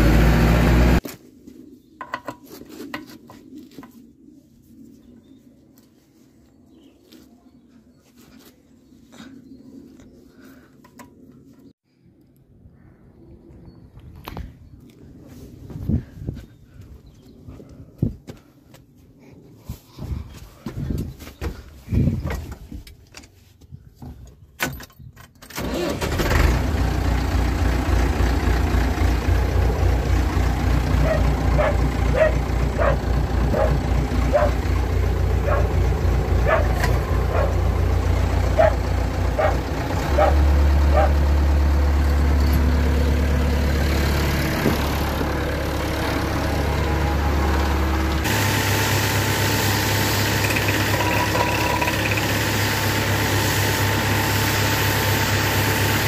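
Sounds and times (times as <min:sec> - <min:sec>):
diesel tractor engine running: 0:00.0 - 0:01.0, 0:25.5 - 0:56.0.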